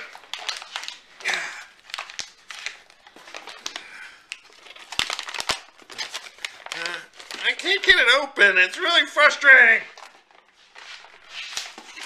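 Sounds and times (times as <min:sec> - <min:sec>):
paper pouch crinkling: 0:00.0 - 0:08.2.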